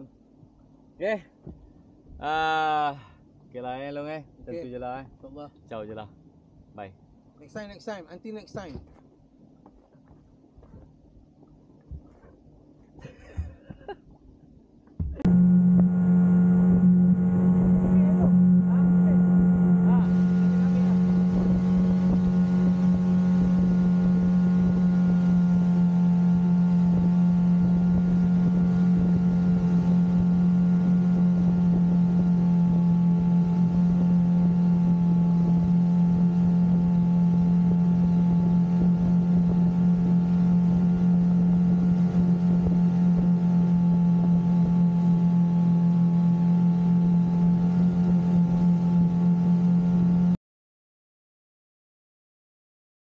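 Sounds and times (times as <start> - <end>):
outboard motors droning: 0.0 - 14.0, 14.7 - 50.4
water rushing in wake: 15.0 - 50.4.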